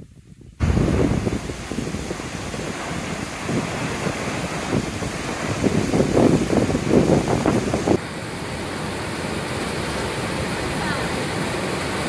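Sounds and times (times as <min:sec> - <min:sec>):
wind buffeting microphone: 0:00.0 - 0:08.0
river rushing over rapids: 0:00.6 - 0:12.0.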